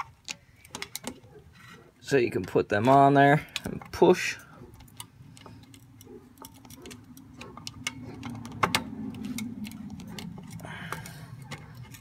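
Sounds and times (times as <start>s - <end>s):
small metallic clicks: 0.0s - 12.0s.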